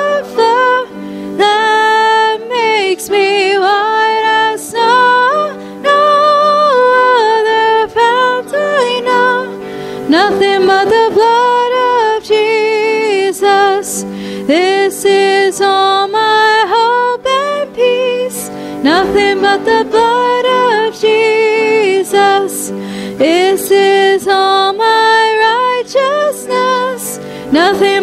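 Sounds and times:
held instrumental chords: 0:00.0 - 0:28.0
hymn singing: 0:00.0 - 0:28.0.

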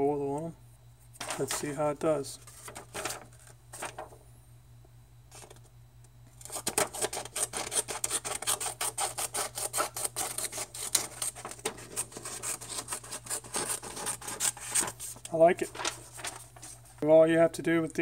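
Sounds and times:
paper handling clicks: 0:01.2 - 0:01.8, 0:02.4 - 0:04.1, 0:10.5 - 0:17.0
scissors cutting paper: 0:06.4 - 0:15.0.

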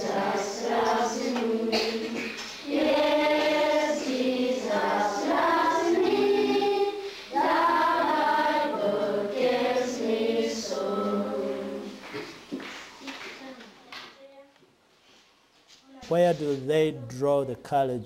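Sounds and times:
choir singing sustained notes: 0:00.0 - 0:12.0.

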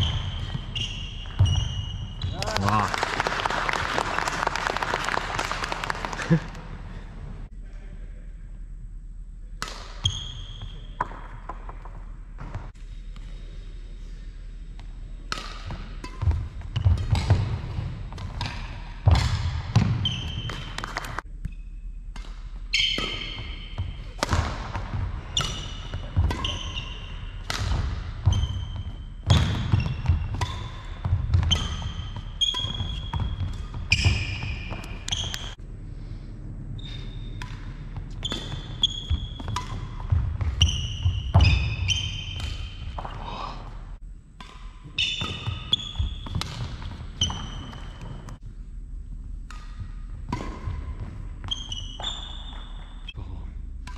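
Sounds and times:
shoe squeaks: 0:00.0 - 0:02.6, 0:10.0 - 0:11.0, 0:20.0 - 0:20.8, 0:22.7 - 0:24.2, 0:25.2 - 0:35.6, 0:36.8 - 0:37.4, 0:38.1 - 0:43.1, 0:45.0 - 0:48.4, 0:51.4 - 0:53.3
racket hitting shuttlecock: 0:15.3 - 0:35.6, 0:37.2 - 0:43.2, 0:44.4 - 0:48.4, 0:49.4 - 0:52.9.

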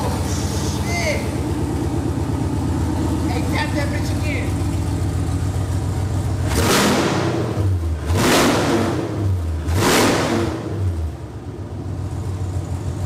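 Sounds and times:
car engine idling and revving: 0:00.0 - 0:13.0.

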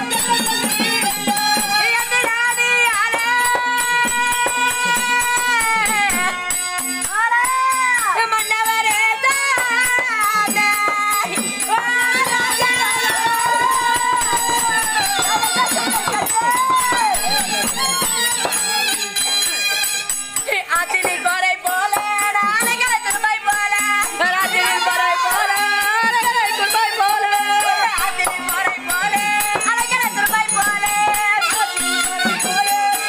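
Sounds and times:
harmonium: 0:00.0 - 0:33.0.

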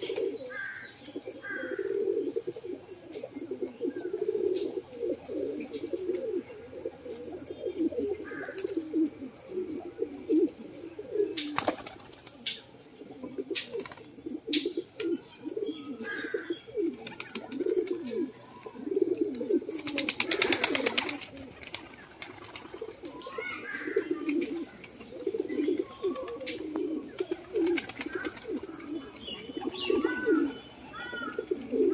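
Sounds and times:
higher bird calls: 0:00.0 - 0:10.4, 0:11.1 - 0:31.9
pigeons cooing: 0:00.0 - 0:31.9
wingbeats flurry: 0:11.4 - 0:12.7, 0:16.8 - 0:18.5, 0:19.2 - 0:25.0, 0:25.7 - 0:29.0.

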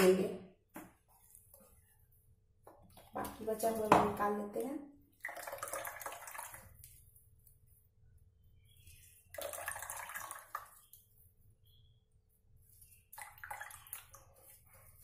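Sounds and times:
wet squishing and splashing: 0:05.1 - 0:07.7, 0:12.7 - 0:15.0.

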